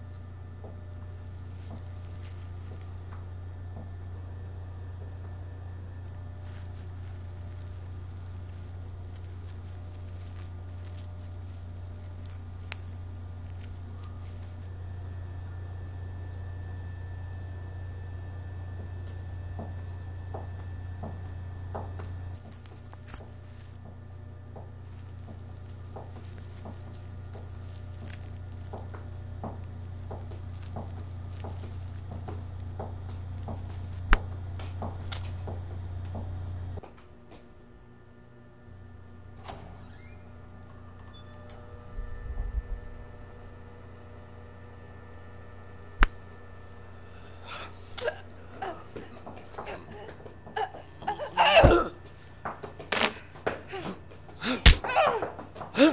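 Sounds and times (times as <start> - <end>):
rope rustling and creaking: 0.0 - 3.3, 6.3 - 14.7, 21.9 - 23.8, 24.6 - 36.2, 51.0 - 55.9
low steady hum: 0.0 - 55.9
low hum: 40.4 - 51.0
sharp crack: 46.0 - 46.2, 52.9 - 53.2, 54.4 - 54.9.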